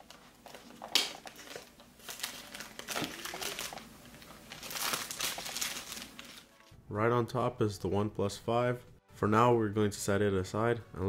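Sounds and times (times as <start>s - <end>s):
plastic shrink wrap crinkling: 0.0s - 6.7s.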